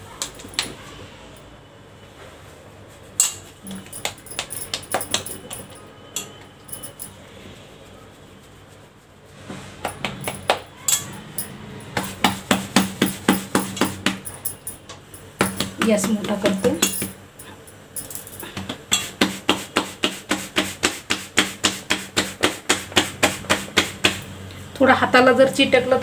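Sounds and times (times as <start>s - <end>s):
dough patted against plate: 9.8s - 10.7s, 12.0s - 14.3s, 15.4s - 16.6s, 18.5s - 24.2s.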